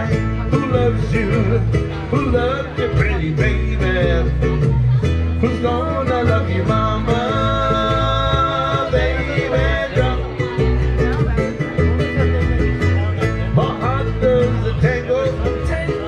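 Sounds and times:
plucked string instrument: 0.0 - 16.0
upright bass line: 0.0 - 16.0.

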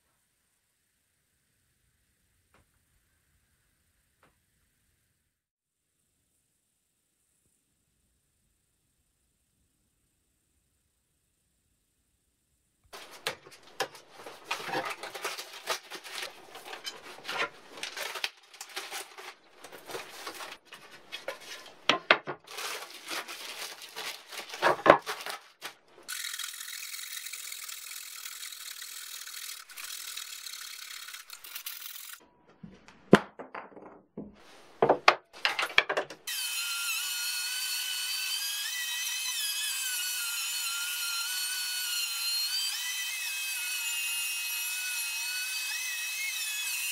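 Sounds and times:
clamps scraping and knocking: 13.0 - 22.5, 34.2 - 36.2.

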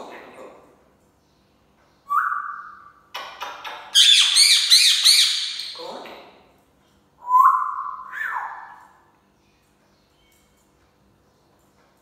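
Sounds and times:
parrot chirping: 2.0 - 5.8, 7.4 - 8.9
parrot whistling: 7.2 - 8.8.

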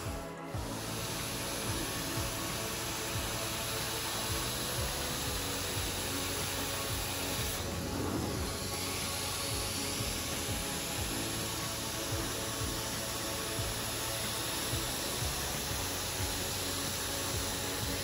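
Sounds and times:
hissing suction of carpet cleaner: 0.0 - 18.0
music with steady beat: 0.0 - 18.0.

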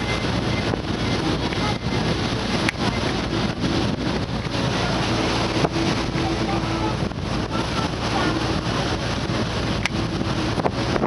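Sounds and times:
ship running noise: 0.0 - 11.0
wind buffeting microphone: 0.0 - 11.0.

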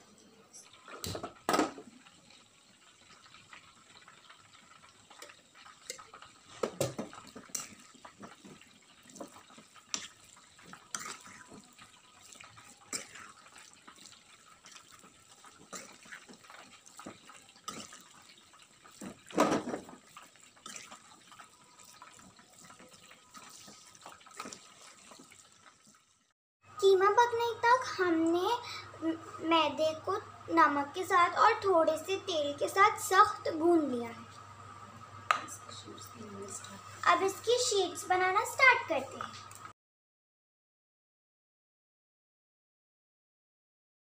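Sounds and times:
meat sizzling in a pan: 0.8 - 26.3.

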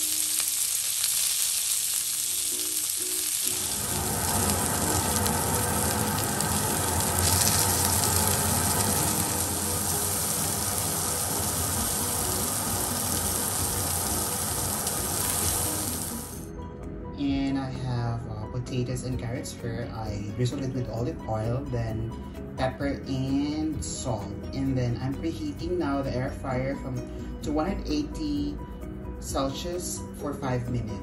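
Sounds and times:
meat sizzling in oil: 0.0 - 16.5
background music: 0.0 - 31.0.

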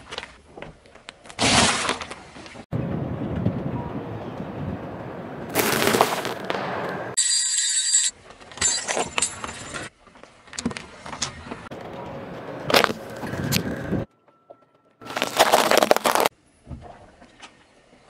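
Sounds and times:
tyre crunching small objects: 5.5 - 6.7, 15.0 - 16.3.

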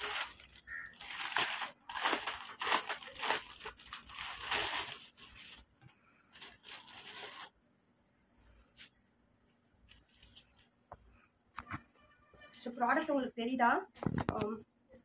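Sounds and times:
plastic packaging crinkling: 0.0 - 5.7, 6.3 - 7.6.

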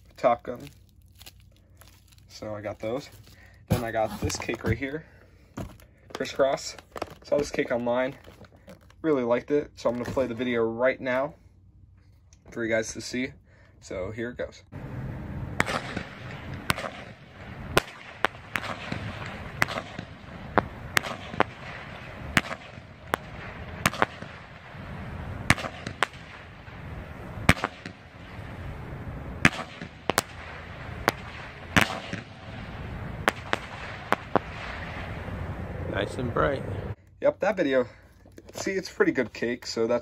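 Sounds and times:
firework cake bangs: 15.6 - 35.2.

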